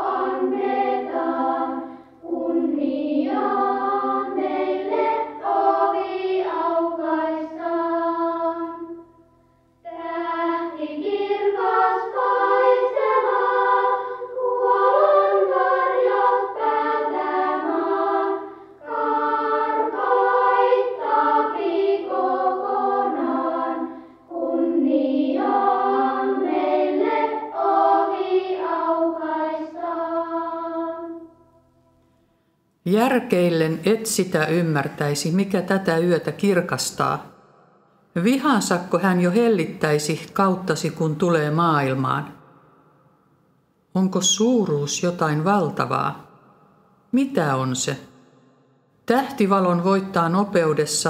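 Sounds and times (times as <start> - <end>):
choir singing slow religious song: 0.0 - 32.5.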